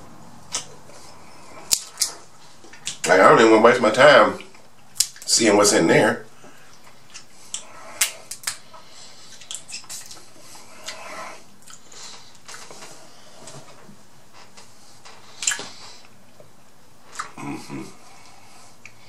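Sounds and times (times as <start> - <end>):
wet chewing: 6.7 - 12.7, 15.3 - 15.8.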